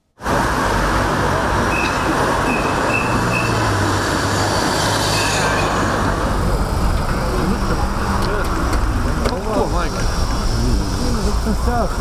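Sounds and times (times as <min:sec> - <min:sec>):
cars driving past: 0:00.2 - 0:12.0
low engine hum: 0:00.2 - 0:12.0
short high squeaks: 0:04.9 - 0:06.0.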